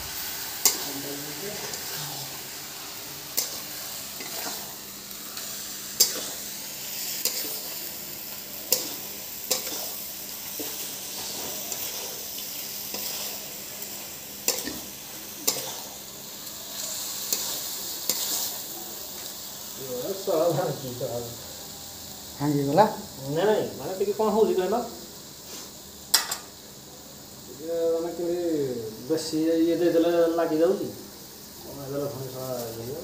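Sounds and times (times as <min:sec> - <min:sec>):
food sizzling in a pan: 0:00.0 - 0:33.0
metal spatula clacking on pan: 0:26.1 - 0:26.5.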